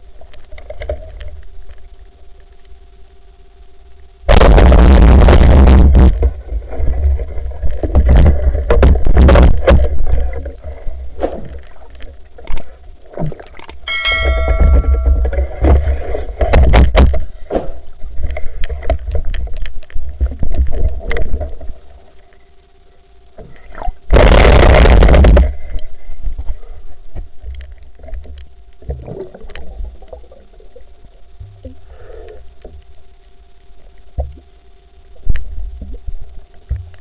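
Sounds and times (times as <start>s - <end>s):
clicks and knocks: 13.6s - 15.4s
short bell-like chime: 13.6s - 15.5s.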